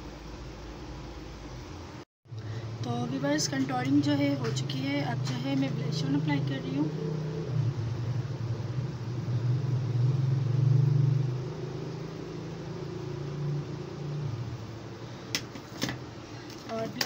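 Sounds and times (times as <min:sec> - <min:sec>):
low engine rumble: 0:02.3 - 0:15.3.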